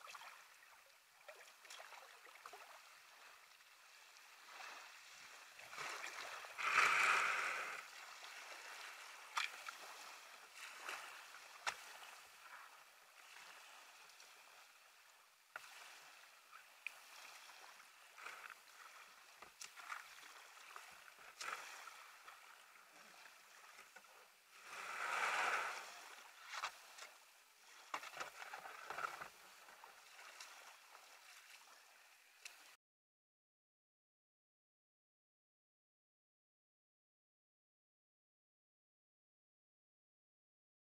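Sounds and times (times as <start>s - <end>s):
paddle splash: 0.0s - 32.8s
water lapping at hull: 0.0s - 32.8s.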